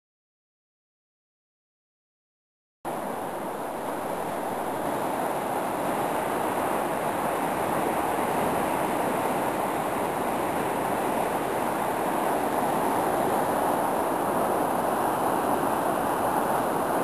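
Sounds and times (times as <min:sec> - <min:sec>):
turbulent river rushing: 0:02.9 - 0:17.0.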